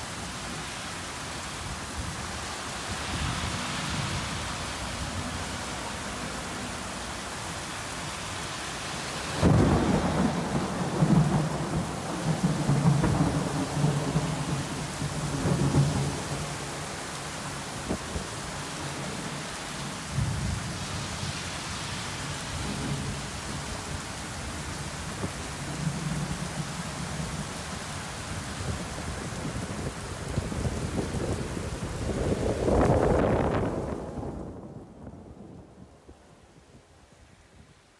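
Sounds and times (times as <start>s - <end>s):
heavy rain pouring: 0.0s - 37.9s
thunder rumbling: 9.3s - 16.9s, 28.6s - 36.0s.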